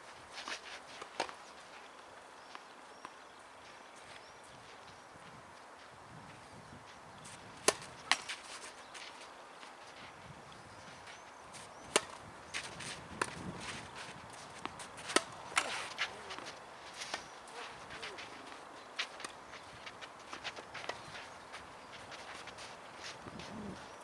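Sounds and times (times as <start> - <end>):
rackets hitting tennis balls: 7.3 - 10.1, 11.0 - 23.5.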